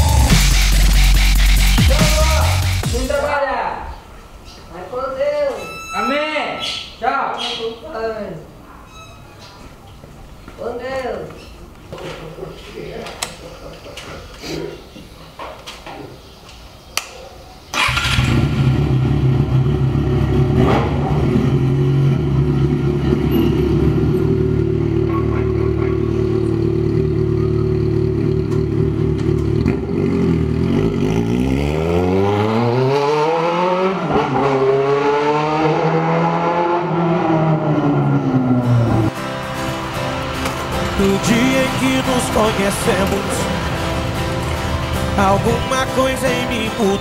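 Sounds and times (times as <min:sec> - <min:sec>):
motorcycle engine starting and idling: 0:17.7 - 0:31.8
motorcycle revving and pulling away: 0:17.8 - 0:47.0.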